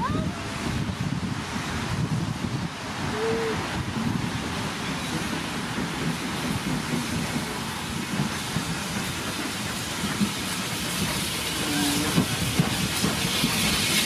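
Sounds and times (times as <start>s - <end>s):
train rumbling on rails: 0.0s - 14.0s
steam hissing: 0.7s - 14.0s.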